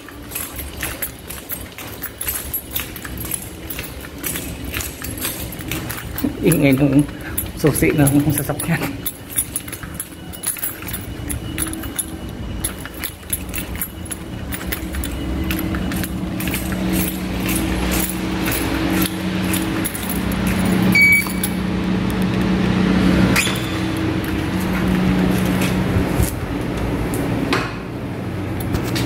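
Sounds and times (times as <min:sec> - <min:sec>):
car keys jangling: 0:00.0 - 0:26.6, 0:28.5 - 0:29.0
steady low hum: 0:00.0 - 0:29.0
short high beep: 0:20.9 - 0:21.4.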